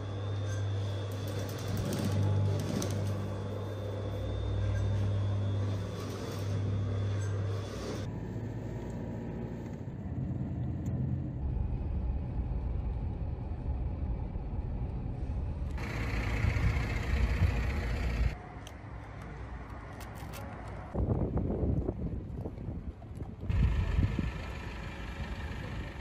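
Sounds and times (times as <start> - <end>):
car engine and tyres rumbling: 0.0 - 26.0
rushing road and wind noise: 8.0 - 26.0.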